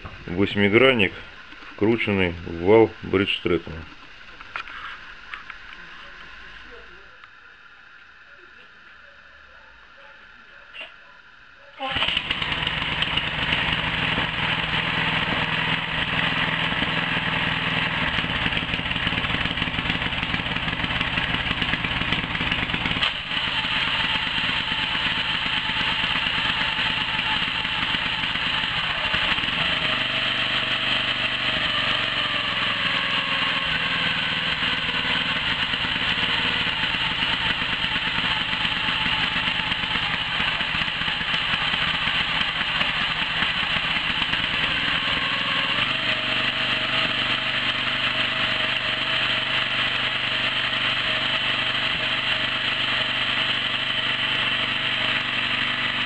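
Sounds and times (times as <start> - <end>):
outboard engine running: 11.8 - 56.0.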